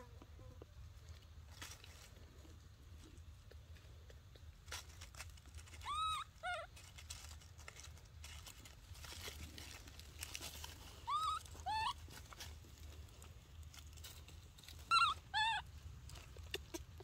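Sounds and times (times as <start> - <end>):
rustling in dry leaves: 0.8 - 3.9, 4.5 - 17.0
baby monkey whimpering cries: 5.8 - 6.8, 11.0 - 12.2, 14.8 - 15.8.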